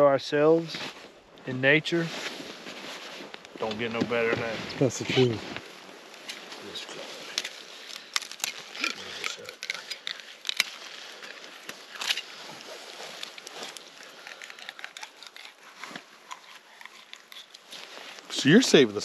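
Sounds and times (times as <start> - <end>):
winter jackets rustling: 0.6 - 9.1
knives scraping and filleting fish: 13.1 - 18.0.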